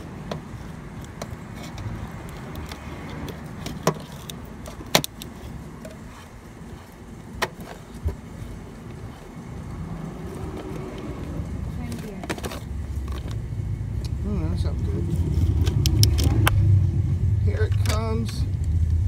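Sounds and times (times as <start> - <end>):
sharp clicks and knocks: 0.2 - 6.8.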